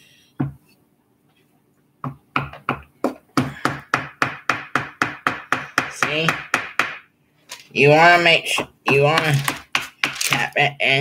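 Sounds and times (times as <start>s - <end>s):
hammer tapping wood: 2.0s - 7.1s, 8.5s - 10.6s.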